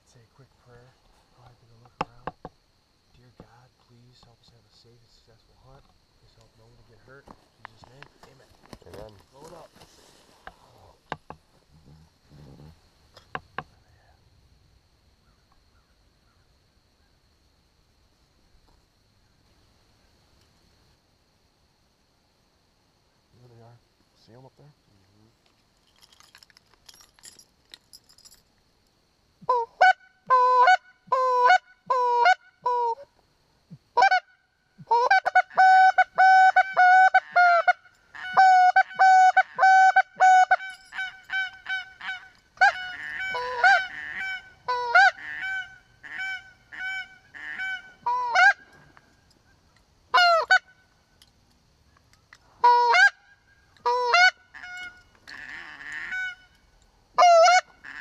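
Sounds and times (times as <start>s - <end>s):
goose call honks and clucks: 29.4s - 33.1s, 33.9s - 48.8s, 50.1s - 50.8s, 52.6s - 56.6s, 57.2s - 58.0s.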